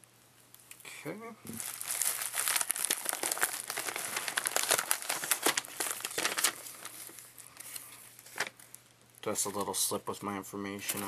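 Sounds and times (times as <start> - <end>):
plastic mailer crinkling: 1.5 - 9.8.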